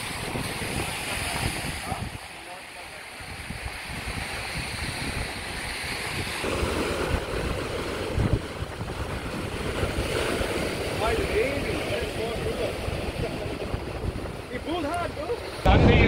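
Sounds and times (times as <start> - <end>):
ocean surf breaking over rocks: 0.0 - 16.0
wind buffeting microphone: 0.0 - 16.0.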